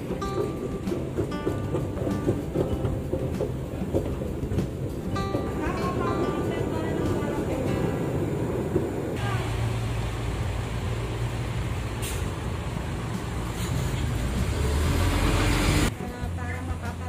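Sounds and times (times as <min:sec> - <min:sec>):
diesel bus engine rumbling: 0:00.0 - 0:17.0
air hiss: 0:07.0 - 0:15.9.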